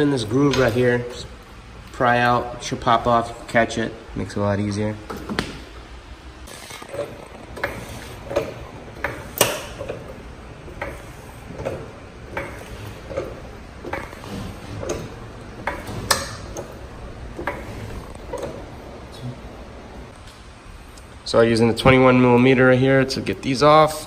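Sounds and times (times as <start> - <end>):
floor jack clicking and clunking: 0.0 - 1.2, 6.4 - 19.0.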